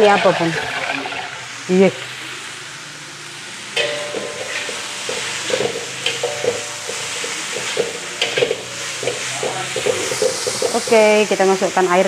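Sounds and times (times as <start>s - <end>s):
stir-fry sizzling in a wok: 0.0s - 12.0s
metal spatula scraping a wok: 3.8s - 11.5s.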